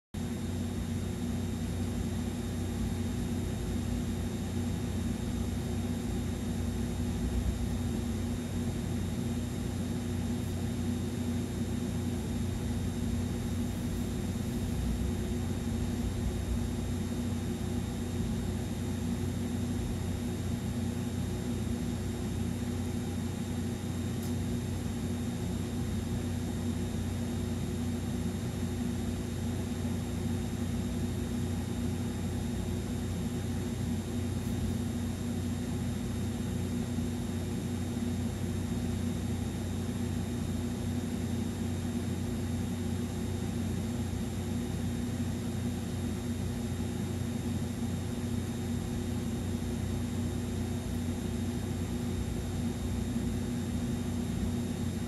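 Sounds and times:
appliance hum with hiss: 0.2 - 55.0.

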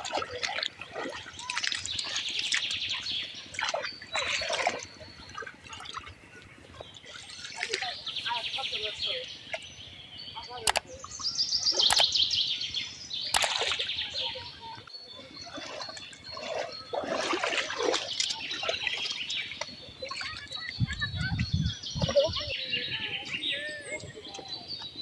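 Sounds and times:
water sloshing and splashing: 0.0 - 9.7, 13.2 - 22.5
birds chirping: 0.0 - 25.0.

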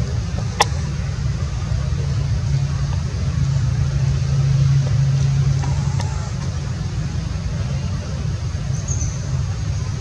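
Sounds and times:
low engine hum: 0.0 - 10.0.

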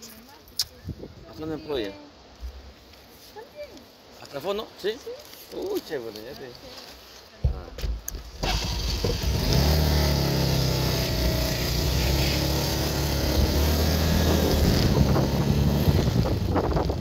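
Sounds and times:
wind noise on microphone: 0.6 - 1.7, 11.6 - 17.0
motorcycle engine running: 8.4 - 17.0.

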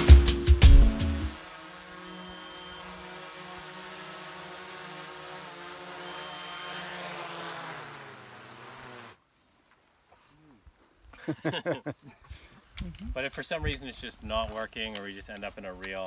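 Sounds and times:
drone propellers whining: 0.6 - 9.2.

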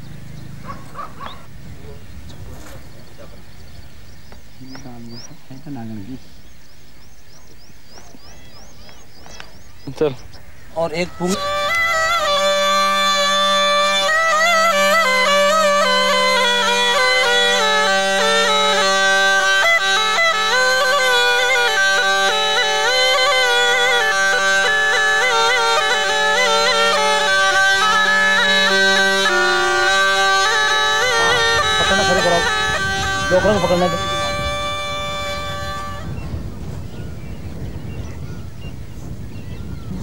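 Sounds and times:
reed pipe melody with drone: 10.2 - 38.4.

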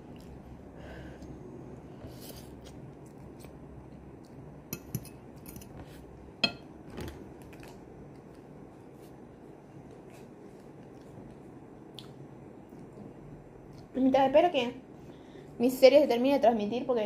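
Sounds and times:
cutlery clinking on a plate: 6.4 - 6.7.

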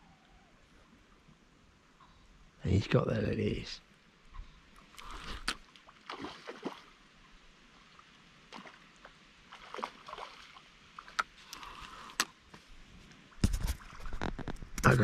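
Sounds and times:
fish splashing in water: 5.0 - 7.0, 9.5 - 12.1.

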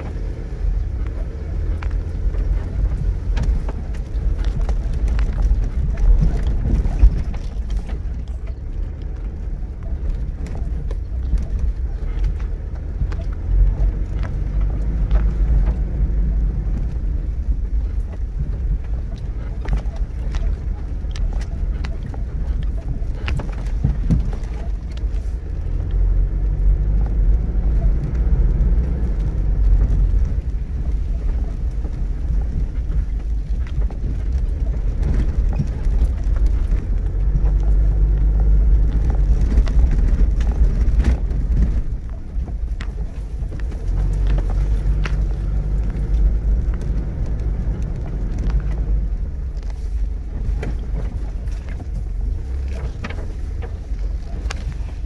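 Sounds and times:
engine and tyres low rumble: 0.0 - 55.0.

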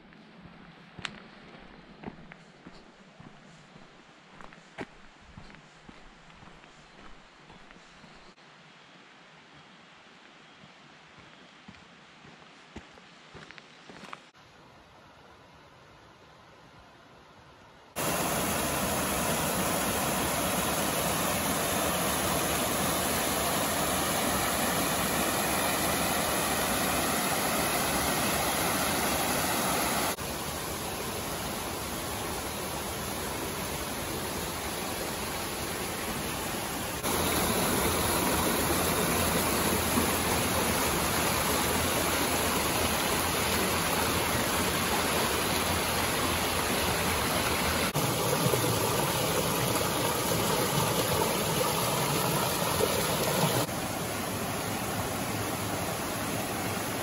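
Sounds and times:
stream splashing over boulders: 18.0 - 57.0.

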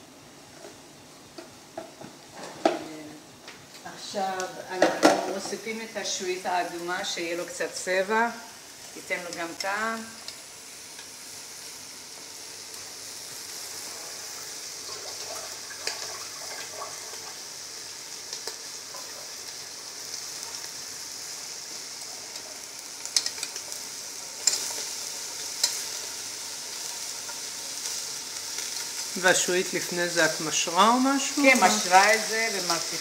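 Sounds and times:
meat sizzling in a pot: 0.0 - 33.0.

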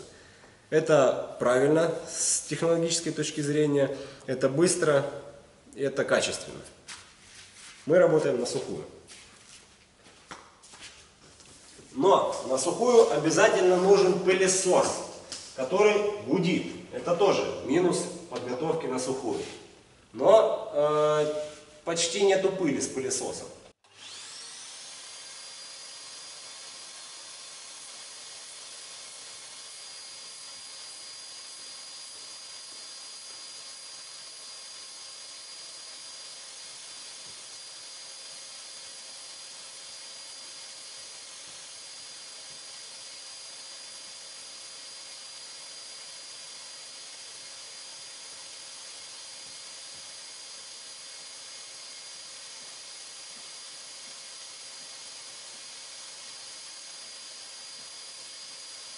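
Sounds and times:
dust extraction vacuum whining: 11.8 - 19.8, 23.7 - 58.9.

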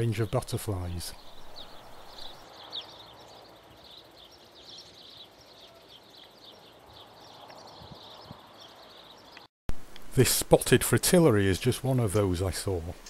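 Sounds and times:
birds chirping: 0.0 - 9.5
faint steady hiss: 0.0 - 13.0.

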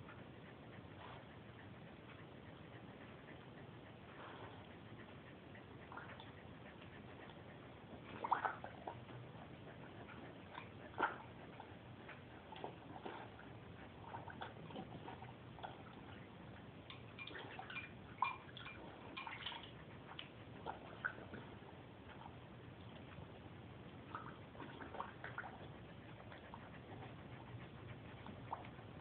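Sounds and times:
puppy splashing water in bowl: 8.0 - 9.3, 16.8 - 23.1, 23.8 - 25.7.

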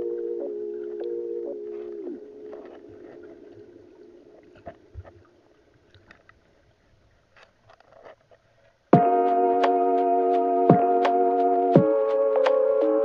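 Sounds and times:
faint clicks: 5.9 - 6.5
background music sliding down: 9.0 - 13.0.

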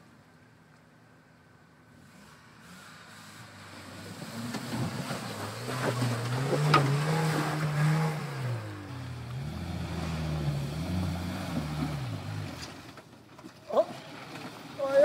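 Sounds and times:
suv engines revving: 1.8 - 15.0
water and mud splashing: 3.5 - 8.8.

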